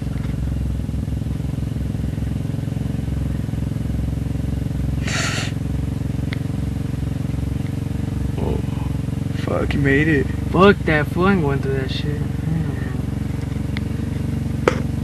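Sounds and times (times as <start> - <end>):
vehicle engine idling: 0.0 - 15.0
short hiss: 5.0 - 5.6.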